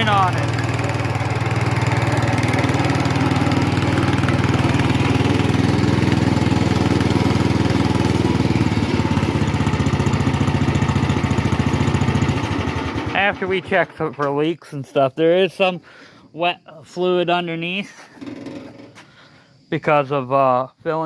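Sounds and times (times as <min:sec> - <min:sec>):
garden tractor engine running: 0:00.0 - 0:15.6.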